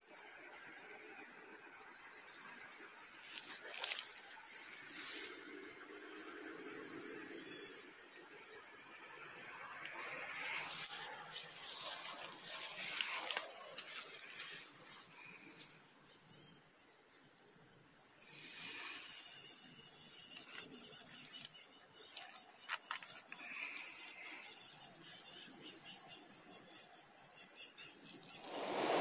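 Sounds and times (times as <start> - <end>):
high-pitched forest hiss: 0.0 - 29.0.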